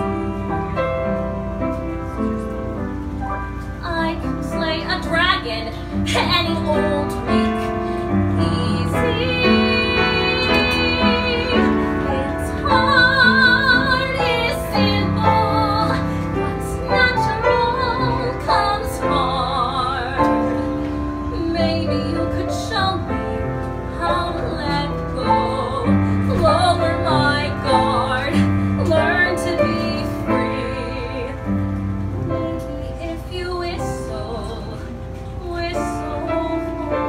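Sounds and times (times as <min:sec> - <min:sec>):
piano accompaniment: 0:00.0 - 0:37.0
woman singing show tune: 0:03.8 - 0:20.6.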